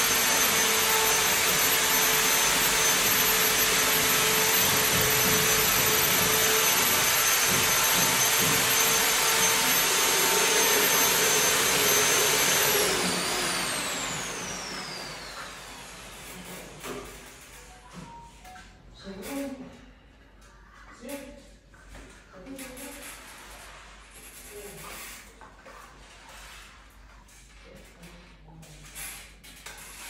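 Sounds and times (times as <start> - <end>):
electric motor whining: 0.0 - 16.1.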